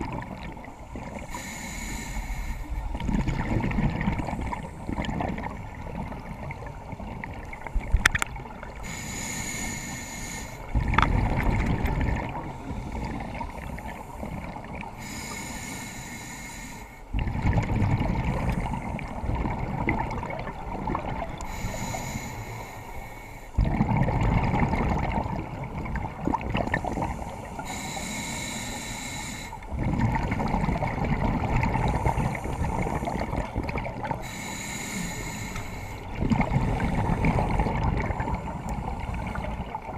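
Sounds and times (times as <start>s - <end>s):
hissing regulator inhale: 1.1s - 2.9s, 8.8s - 10.7s, 12.5s - 17.1s, 21.4s - 23.6s, 26.6s - 29.7s, 31.8s - 33.5s, 34.1s - 36.1s
rumbling exhaust bubbles: 2.8s - 7.4s, 10.7s - 15.0s, 17.1s - 22.0s, 22.6s - 27.7s, 29.6s - 34.6s, 35.8s - 39.9s.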